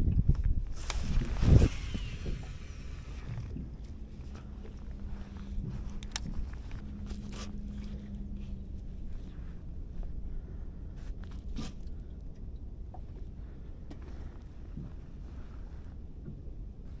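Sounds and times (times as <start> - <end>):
faint steady hum: 0.0 - 17.0
reel spool whirring: 0.7 - 9.3.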